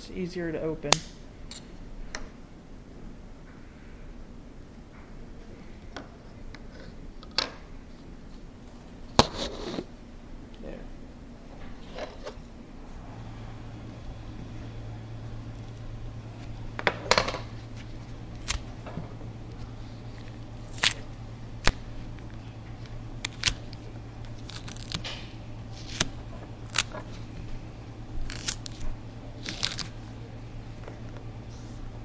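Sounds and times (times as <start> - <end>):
steady low hum: 0.0 - 32.0
husk snapping and clicking: 18.4 - 18.7, 20.3 - 21.0, 21.6 - 27.1, 28.2 - 30.0.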